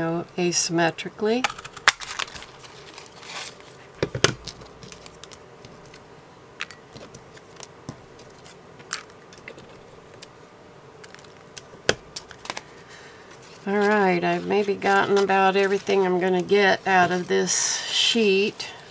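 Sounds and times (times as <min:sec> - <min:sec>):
paper rustling: 0:01.6 - 0:06.0, 0:12.2 - 0:17.6.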